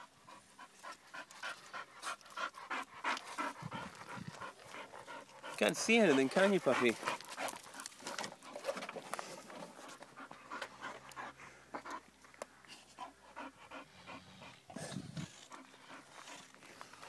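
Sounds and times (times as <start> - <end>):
dog panting: 0.0 - 17.0
paws and pot scuffing on gravel: 3.2 - 10.1, 16.0 - 17.0.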